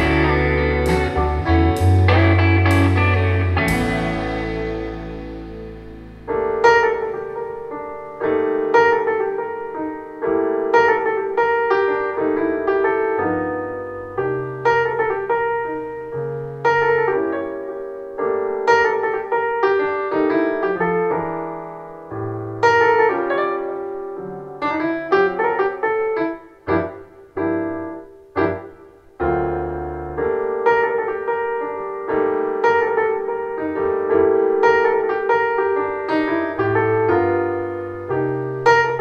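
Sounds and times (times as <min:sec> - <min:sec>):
soft-rock chord: 0:00.0 - 0:06.5
jazz piano through loudspeakers: 0:00.0 - 0:39.0.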